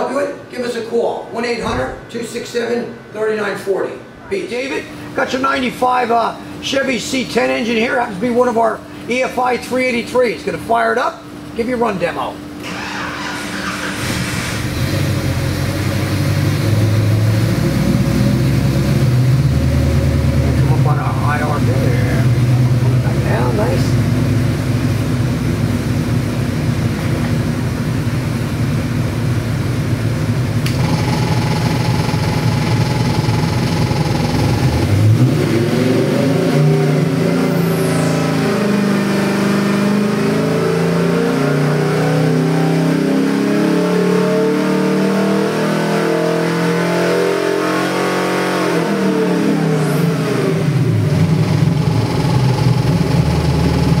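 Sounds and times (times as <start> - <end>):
engine revving on dyno: 12.6 - 54.0.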